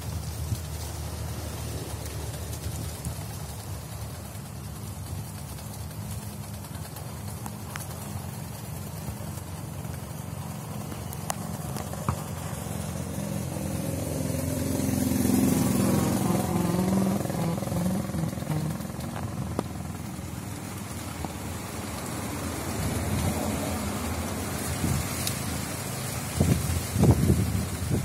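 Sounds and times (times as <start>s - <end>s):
motor vehicle passing: 0.0s - 28.0s
wind buffeting microphone: 11.4s - 25.2s, 26.2s - 28.0s.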